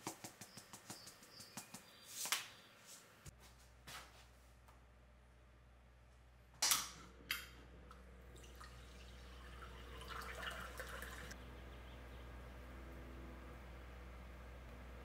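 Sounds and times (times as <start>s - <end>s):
sparkling water pouring into glass: 8.4s - 11.4s.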